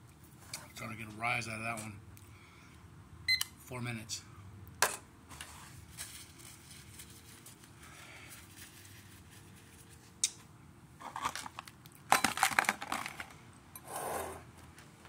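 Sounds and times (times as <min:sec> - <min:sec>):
paper or plastic crinkling: 0:11.0 - 0:13.4.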